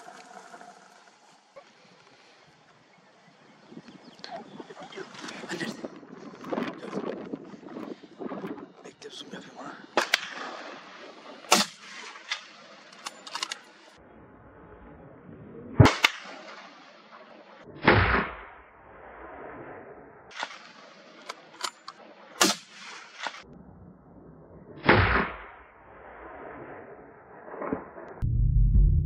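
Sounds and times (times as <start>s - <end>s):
rifle shots: 10.0s - 13.7s, 22.4s - 23.4s.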